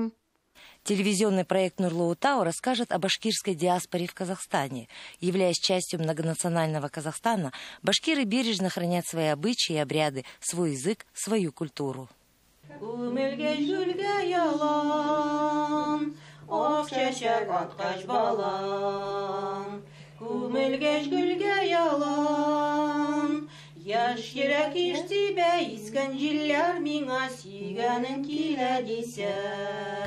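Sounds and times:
woman singing a slow folk song: 12.7s - 30.0s.

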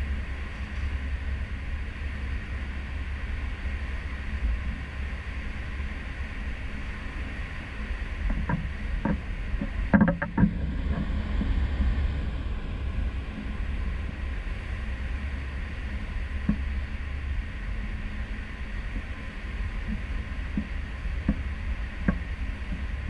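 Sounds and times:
ship wake churning: 0.0s - 23.0s
wind rumbling: 7.4s - 23.0s.

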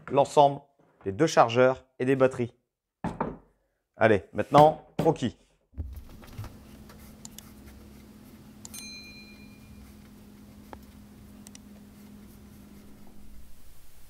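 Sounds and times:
steady low hum: 5.9s - 14.0s
short bell-like ping: 8.7s - 9.8s
pencil drawing on paper: 11.7s - 13.3s.

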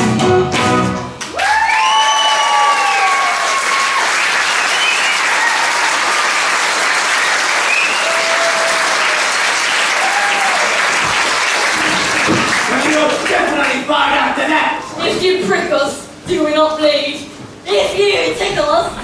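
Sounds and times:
audience applauding: 0.6s - 14.1s
whoops: 1.2s - 6.2s, 7.6s - 9.2s, 9.9s - 10.8s.

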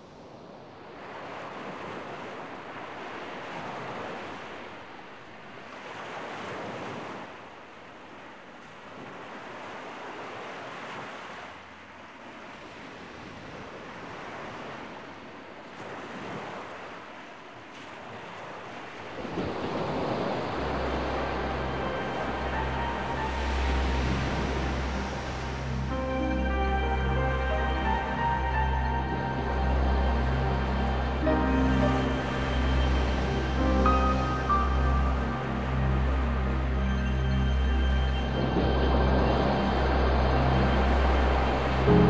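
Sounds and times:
surf breaking on shore: 12.4s - 36.4s
music: 20.4s - 42.0s.

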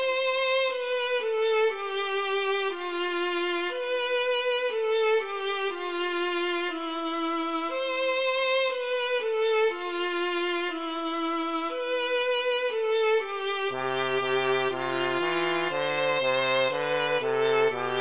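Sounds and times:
slow violin-like melody: 0.0s - 18.0s
lower melodic line: 13.7s - 18.0s.

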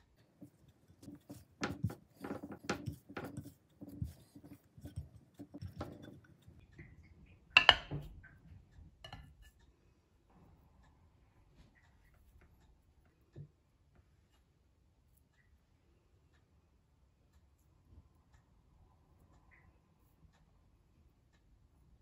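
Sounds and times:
hands kneading sticky dough: 0.0s - 7.0s
taps and knocks against glass: 7.6s - 8.2s.

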